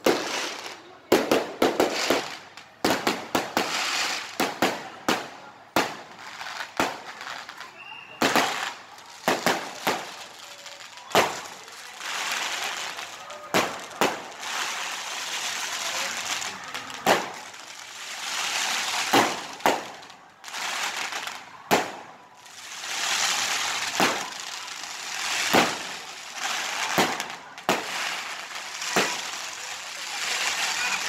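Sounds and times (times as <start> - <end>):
fireworks bangs: 0.0 - 31.0
crackling sparks: 8.2 - 31.0.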